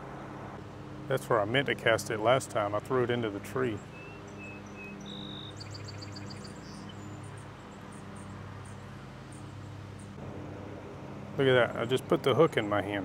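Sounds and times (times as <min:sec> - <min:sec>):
low mechanical hum: 0:00.0 - 0:13.0
birds whistling and chirping: 0:03.8 - 0:07.2.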